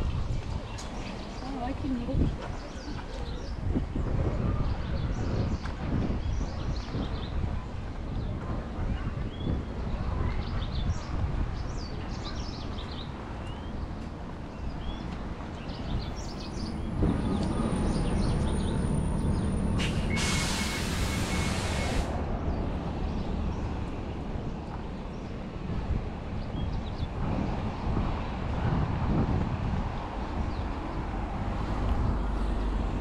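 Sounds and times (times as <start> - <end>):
steady outdoor rumble: 0.0 - 33.0
birds chirping: 11.7 - 23.8
vehicle passing: 16.4 - 24.3
loud hiss: 19.8 - 22.2.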